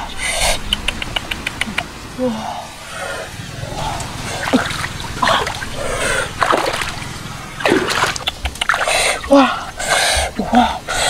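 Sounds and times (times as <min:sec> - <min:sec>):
water splashing: 0:02.8 - 0:10.6.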